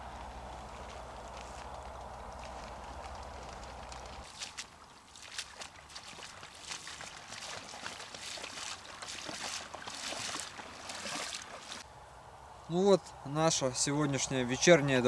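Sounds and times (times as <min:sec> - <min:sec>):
wading through shallow water: 0:00.0 - 0:11.8.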